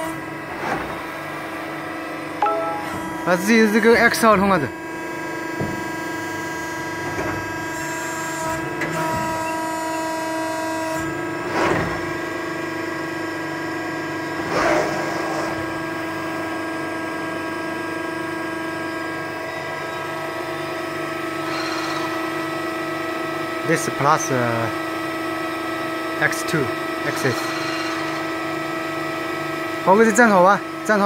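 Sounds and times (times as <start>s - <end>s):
high machine whine: 18.3s - 24.0s, 26.3s - 28.9s.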